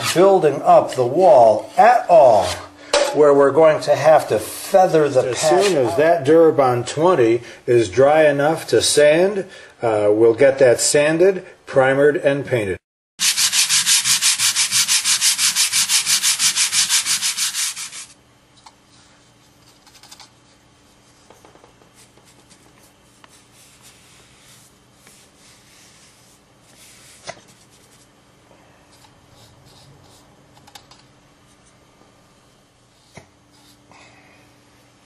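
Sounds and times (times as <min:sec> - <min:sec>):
hand sanding strokes: 0:13.2 - 0:18.2.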